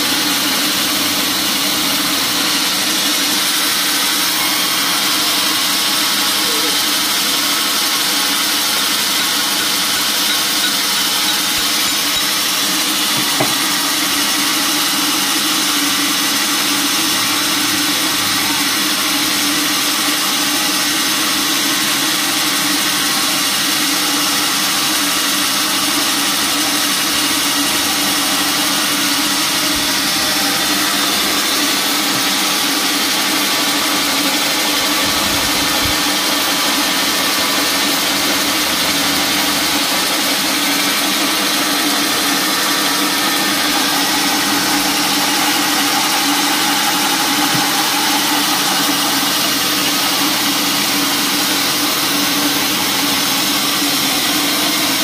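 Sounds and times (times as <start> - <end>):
band saw mechanical hum with hiss: 0.0 - 55.0.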